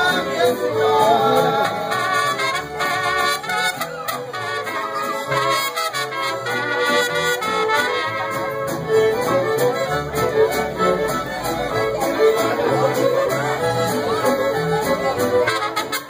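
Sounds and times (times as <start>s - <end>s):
mariachi band playing: 0.0s - 16.0s
trumpets: 1.8s - 8.8s, 15.1s - 16.0s.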